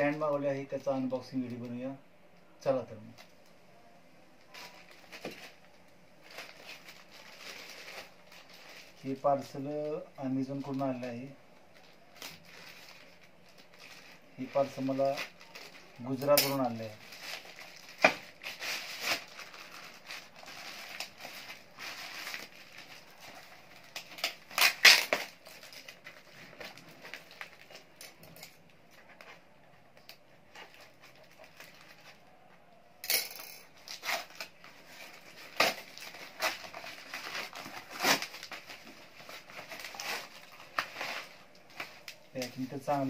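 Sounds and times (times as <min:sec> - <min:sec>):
plastic and paper crinkling: 0:04.4 - 0:32.5, 0:33.6 - 0:43.0
scissors cutting packaging: 0:15.0 - 0:26.7, 0:33.8 - 0:42.5.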